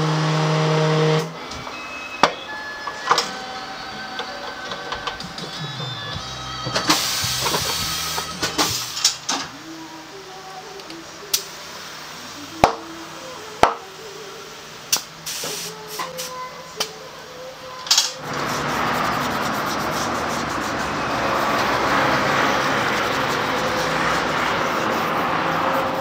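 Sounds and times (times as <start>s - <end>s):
air hissing from tyre inflator: 6.6s - 16.9s, 18.0s - 26.0s
tyre scrubbed with soapy water: 18.2s - 26.0s.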